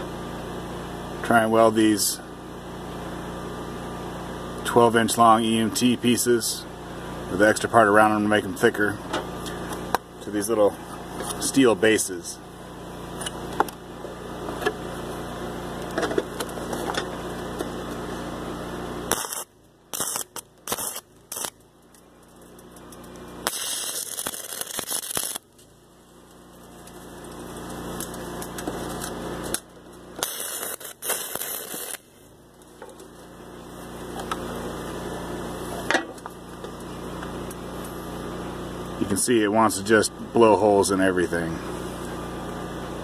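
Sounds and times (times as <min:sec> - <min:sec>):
welding arc crackling and hissing: 0:19.0 - 0:39.9.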